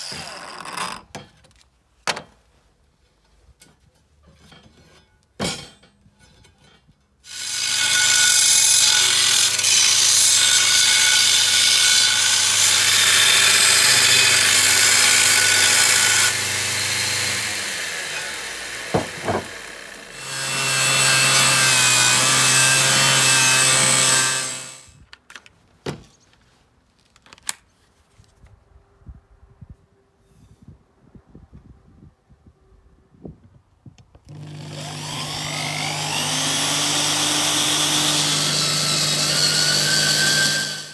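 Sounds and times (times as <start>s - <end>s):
belt grinder grinding steel: 7.3s - 24.9s, 34.3s - 40.9s.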